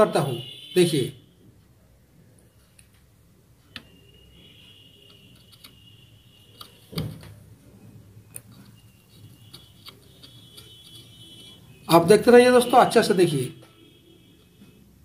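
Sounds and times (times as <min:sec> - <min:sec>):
faint high whine: 0:03.7 - 0:06.7
tools clicking and tapping: 0:04.6 - 0:05.9, 0:06.5 - 0:07.4, 0:08.3 - 0:11.6.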